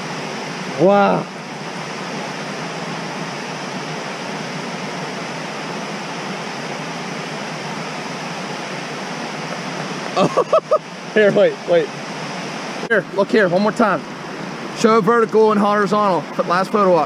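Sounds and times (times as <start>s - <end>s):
water rushing over dam: 0.0s - 17.0s
person speaking: 10.2s - 11.9s.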